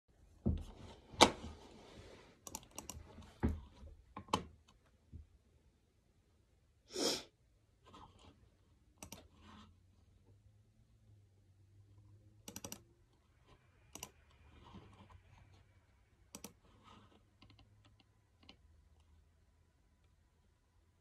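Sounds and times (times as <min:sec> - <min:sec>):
laptop keyboard and touchpad clicks: 0:12.5 - 0:12.8.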